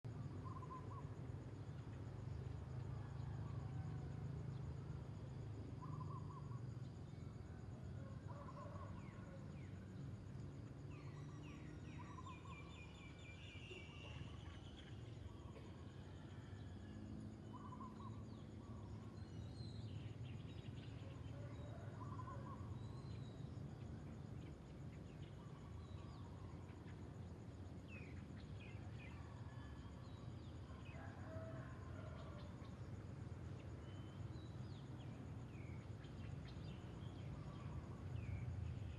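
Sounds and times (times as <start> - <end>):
birds and insects chirping: 0.1 - 38.9.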